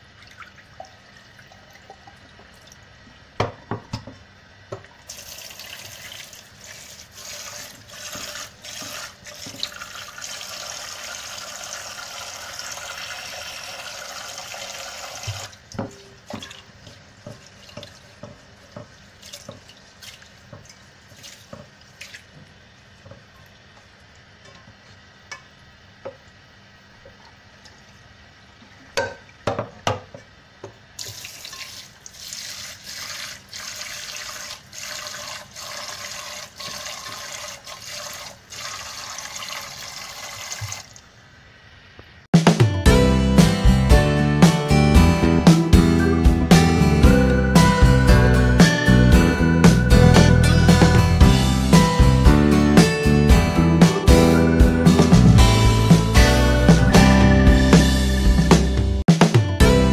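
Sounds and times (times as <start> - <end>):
water splashing and dribbling: 4.8 - 24.7, 31.0 - 41.1.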